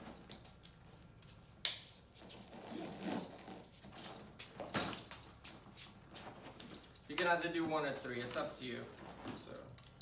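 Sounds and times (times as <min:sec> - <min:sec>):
sharp snap: 0:01.6 - 0:01.9
fabric rustling: 0:02.1 - 0:09.7
straps pulled through buckles: 0:02.2 - 0:07.4.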